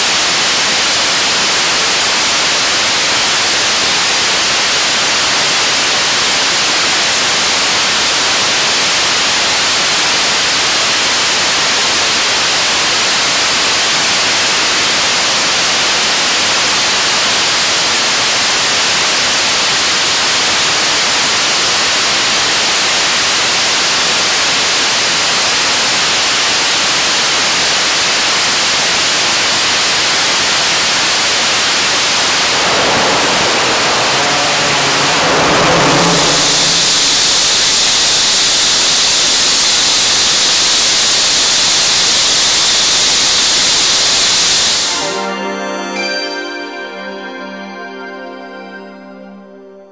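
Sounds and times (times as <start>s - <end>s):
rocket engine roaring: 30.8s - 39.0s
steady tones: 31.5s - 38.1s.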